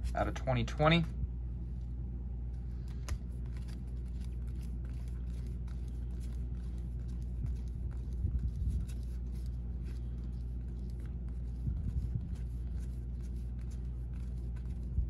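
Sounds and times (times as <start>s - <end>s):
steady low hum: 0.0s - 15.0s
trading cards rustling and clicking: 2.6s - 15.0s.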